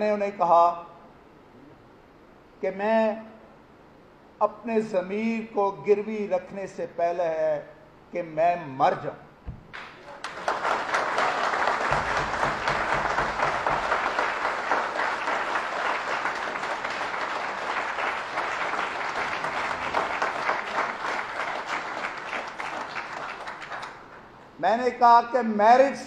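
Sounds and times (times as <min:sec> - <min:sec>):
audience applauding: 0:09.7 - 0:24.4.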